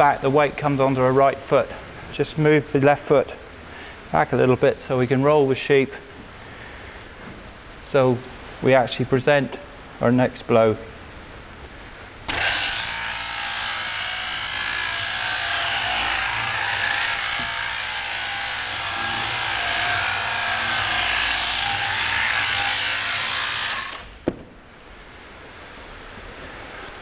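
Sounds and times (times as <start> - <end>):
electric shears buzzing: 12.3 - 24.2.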